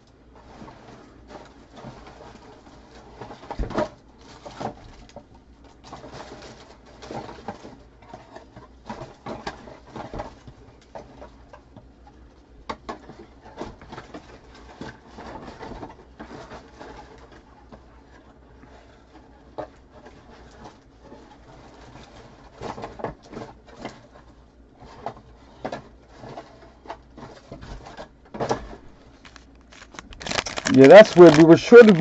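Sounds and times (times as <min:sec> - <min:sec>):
wrappers rustling and crinkling: 0:28.7 - 0:32.0.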